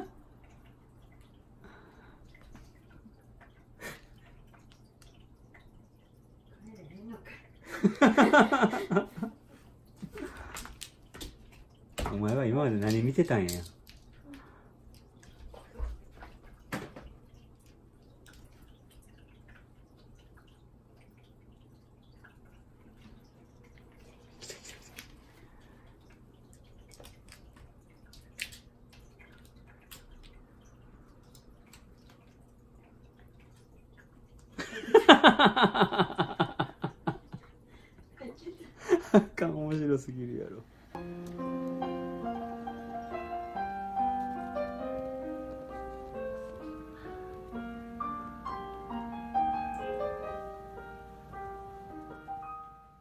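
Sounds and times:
piano music: 0:41.0 - 0:53.0.

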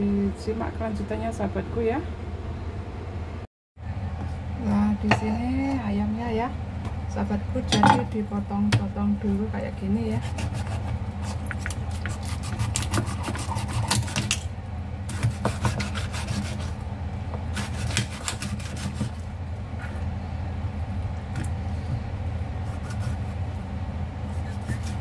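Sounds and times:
steady low hum: 0:00.0 - 0:25.0
scraping and rubbing of meat: 0:10.2 - 0:14.2, 0:24.2 - 0:25.0.

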